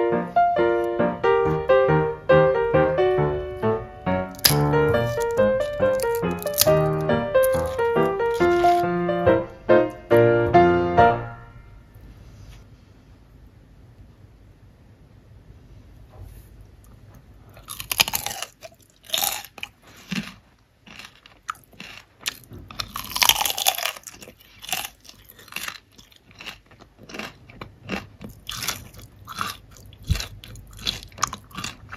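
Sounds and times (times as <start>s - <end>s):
crunchy chips being chewed: 4.3s - 8.9s, 17.5s - 31.9s.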